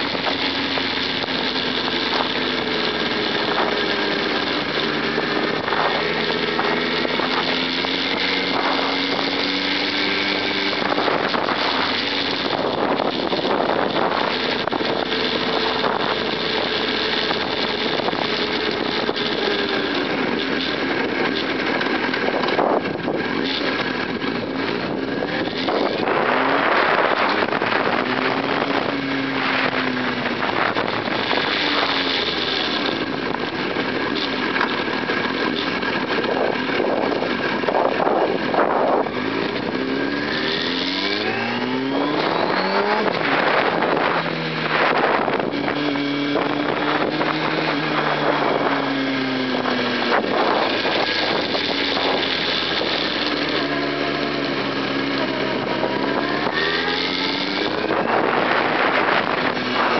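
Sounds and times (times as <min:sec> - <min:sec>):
motorcycle engine revving: 0:00.0 - 0:59.9
wind rush on microphone: 0:00.0 - 0:59.9.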